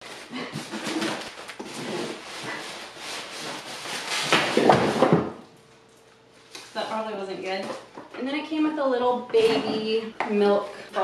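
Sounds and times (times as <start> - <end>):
styrofoam scraping and squeaking: 0.0 - 4.8.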